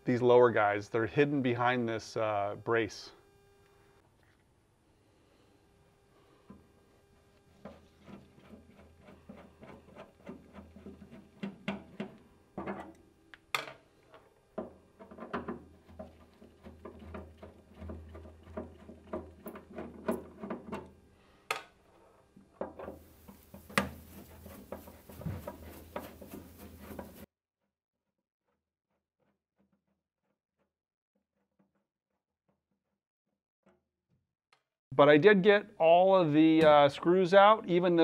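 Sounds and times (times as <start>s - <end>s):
steady low hum: 0.0s - 4.0s.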